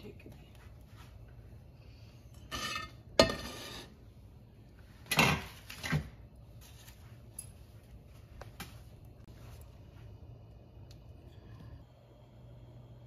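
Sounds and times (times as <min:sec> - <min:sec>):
metal cookware clanking: 0:02.4 - 0:04.0.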